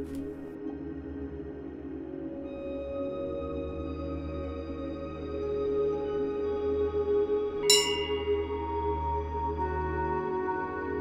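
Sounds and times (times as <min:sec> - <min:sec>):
soft ambient music: 0:00.0 - 0:11.0
temple bell ringing: 0:07.7 - 0:09.8.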